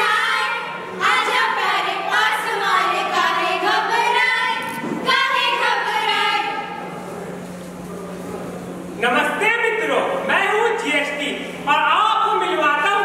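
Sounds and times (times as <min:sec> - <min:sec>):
women singing a cappella: 0:00.0 - 0:06.8.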